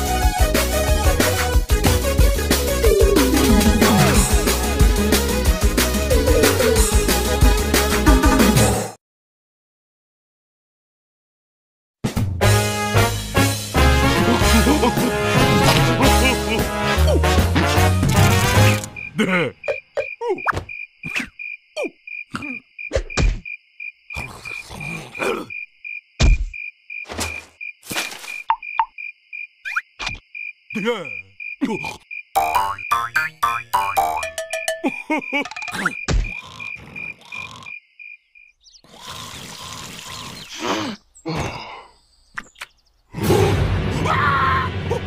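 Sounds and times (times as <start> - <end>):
cricket chirping: 18.6 - 43.0
cartoon squeaky grunts: 19.1 - 22.6, 24.2 - 25.6, 30.8 - 32.0, 34.9 - 37.5, 40.5 - 41.8
cartoon character snoring: 24.1 - 25.5, 31.6 - 32.0, 35.8 - 37.8, 38.8 - 41.9.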